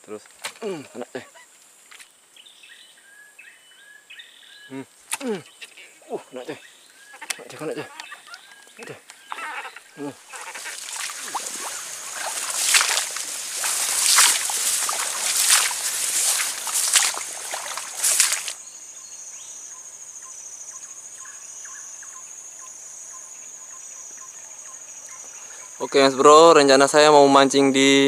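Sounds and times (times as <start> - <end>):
grass and plants rustling: 4.7 - 18.6
high insect drone: 8.7 - 28.0.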